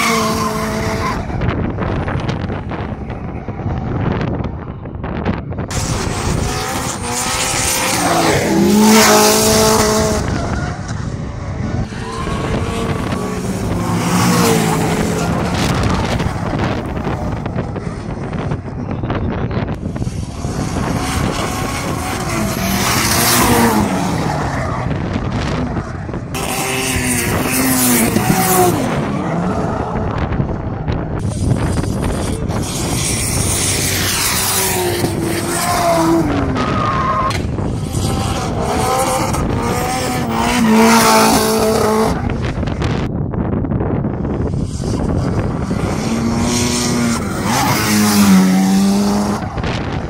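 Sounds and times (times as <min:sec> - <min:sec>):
car engines revving hard: 0:00.0 - 0:04.6, 0:05.2 - 0:43.1, 0:44.2 - 0:50.0.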